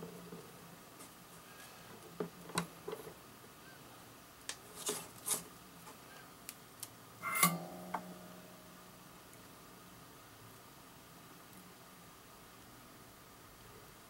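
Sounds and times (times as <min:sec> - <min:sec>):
short metallic ring: 0:07.2 - 0:08.6.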